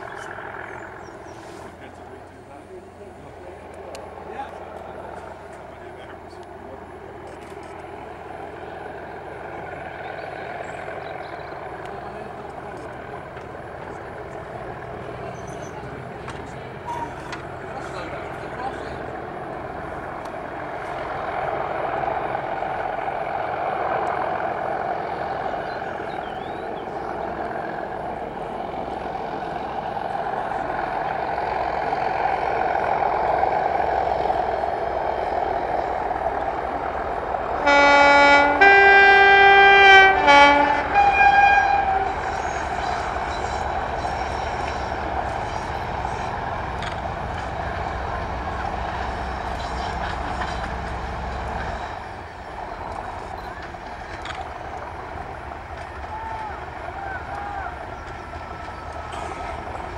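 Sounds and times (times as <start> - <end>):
diesel locomotives working hard: 0.0 - 59.9
two-tone locomotive horn: 37.6 - 45.8.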